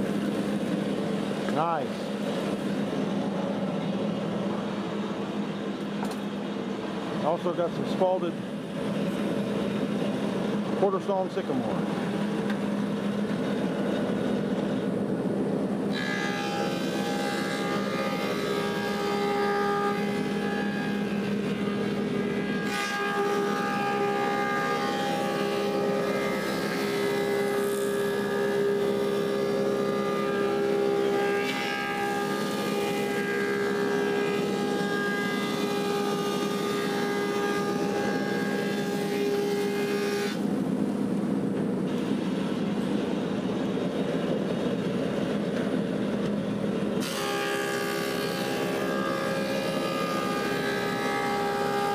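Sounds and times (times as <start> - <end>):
planer cutting wood whine: 15.7 - 40.6, 47.0 - 51.9.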